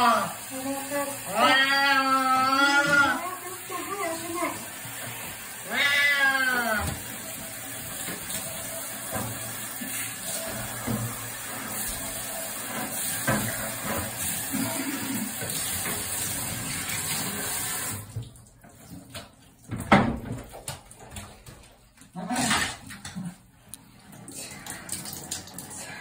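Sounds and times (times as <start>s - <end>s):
shower spray running: 0.0s - 18.3s
cat meowing: 1.3s - 4.6s, 5.6s - 7.0s.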